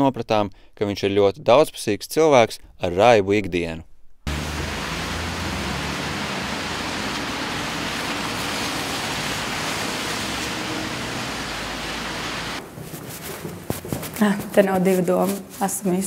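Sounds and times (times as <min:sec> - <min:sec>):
rain hiss: 0:04.3 - 0:12.6
car tyres on wet road: 0:04.3 - 0:12.8
low hum of traffic: 0:04.3 - 0:14.2.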